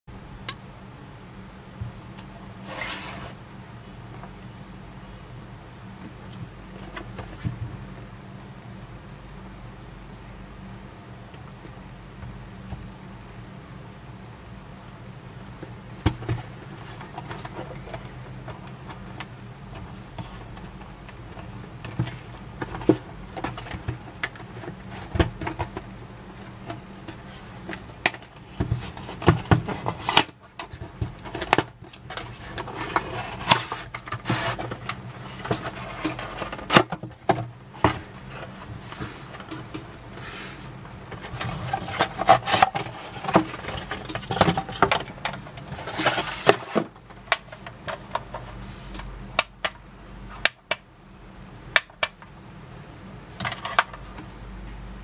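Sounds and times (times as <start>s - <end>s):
cardboard packaging rubbing and scraping: 1.9s - 3.4s, 16.2s - 19.2s, 19.8s - 49.0s.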